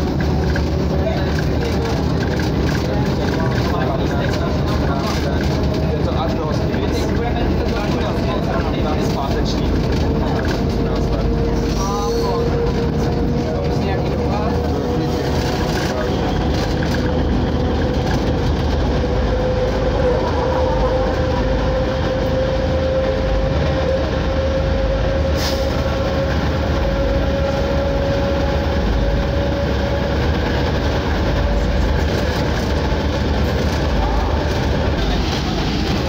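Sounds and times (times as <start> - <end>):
railcar rumble with whine: 0.0 - 36.0.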